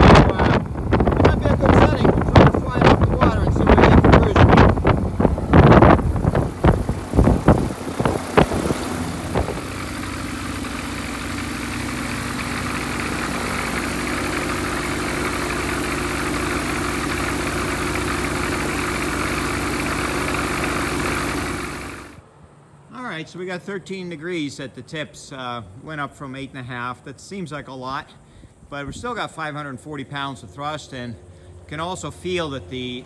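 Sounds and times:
wind buffeting microphone: 0:00.0 - 0:10.6
propeller aircraft engine running: 0:00.0 - 0:22.2.

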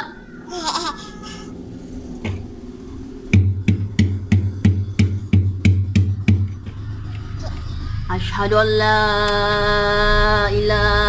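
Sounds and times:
faint low hum: 0:00.0 - 0:11.0
rhythmic knocking thuds: 0:03.3 - 0:08.0.

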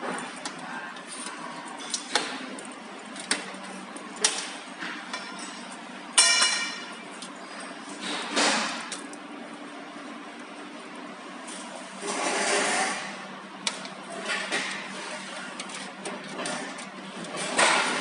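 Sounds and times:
loud ringing metal clank: 0:06.2 - 0:07.0.

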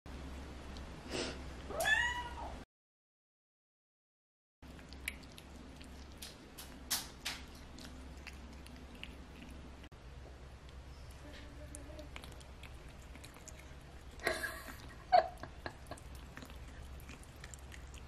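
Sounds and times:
cat meowing: 0:01.7 - 0:02.6.

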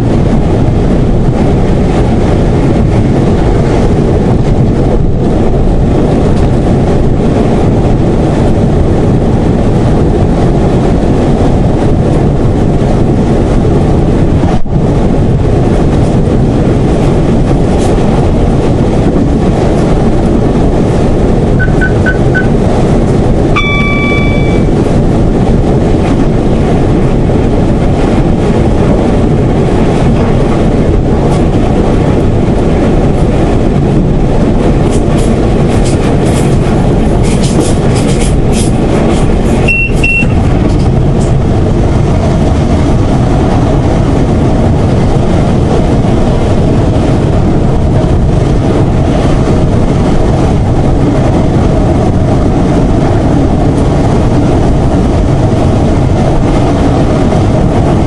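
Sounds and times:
train engine and wheels rumbling: 0:00.0 - 0:58.0
quick beeps: 0:21.6 - 0:22.5, 0:23.6 - 0:24.7, 0:39.7 - 0:40.4
short horn-like tone: 0:21.6 - 0:22.5, 0:23.6 - 0:24.7, 0:39.7 - 0:40.4.

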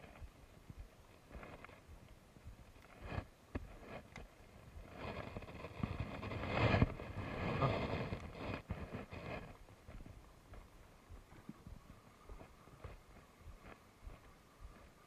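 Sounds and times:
cloth rubbing on microphone: 0:02.9 - 0:09.6.

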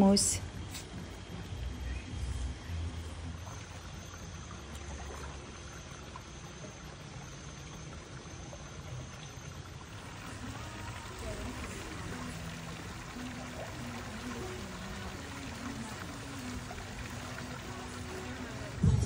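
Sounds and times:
water trickling: 0:00.0 - 0:18.9
low rumble: 0:18.8 - 0:19.0.

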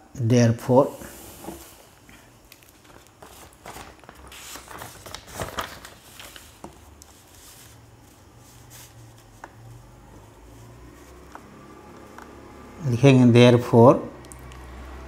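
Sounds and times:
paper rustling and crinkling: 0:02.5 - 0:12.2.

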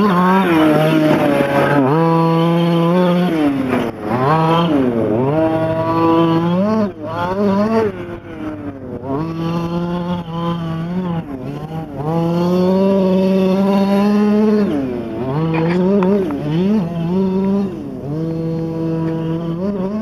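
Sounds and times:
rc truck engine revving: 0:00.0 - 0:20.0.

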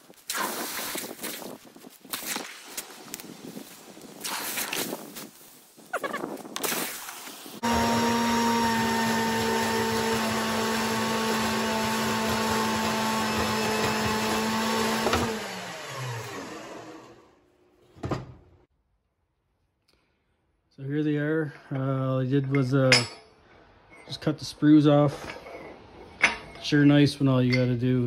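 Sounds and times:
bandsaw humming: 0:07.6 - 0:17.4
bandsaw winding down: 0:07.6 - 0:17.4.

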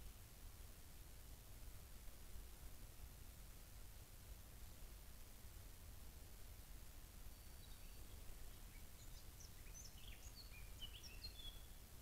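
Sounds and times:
microphone hiss and rumble: 0:00.0 - 0:12.0.

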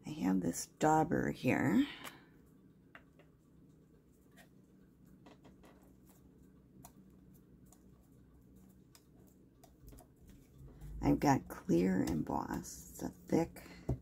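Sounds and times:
low room hum: 0:00.0 - 0:14.0
light clicks and taps: 0:07.6 - 0:10.9.

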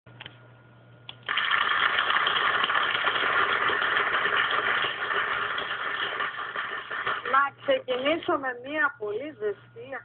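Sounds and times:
faint hum: 0:00.1 - 0:10.0
audience applauding: 0:01.3 - 0:07.4.

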